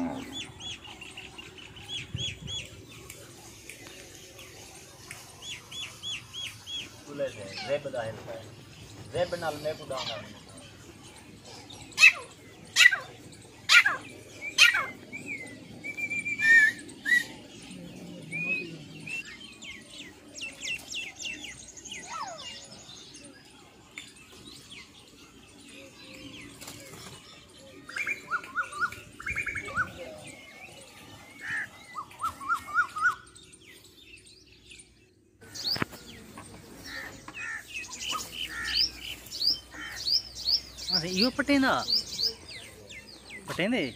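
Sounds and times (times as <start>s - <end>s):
whistled bird notes and trills: 0.0s - 43.9s
loud sharp bird calls: 24.3s - 34.7s, 35.4s - 43.9s.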